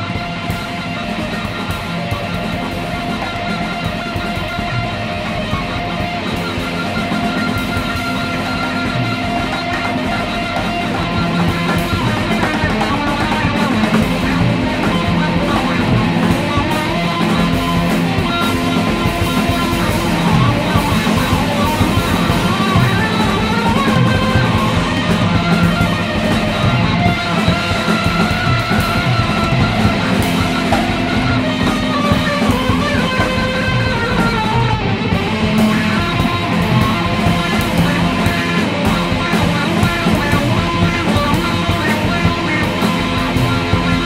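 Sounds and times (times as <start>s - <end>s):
drum kit: 0.0s - 44.0s
electric guitar: 0.0s - 44.0s.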